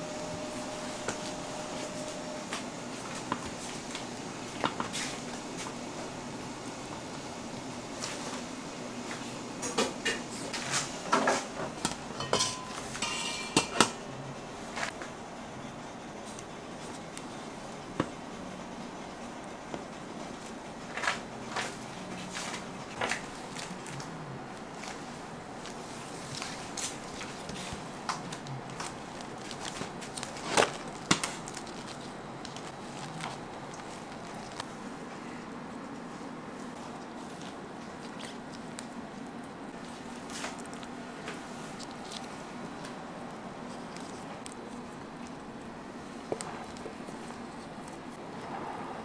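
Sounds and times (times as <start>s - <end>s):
steel pots knocking and clinking: 12.1s - 14.0s.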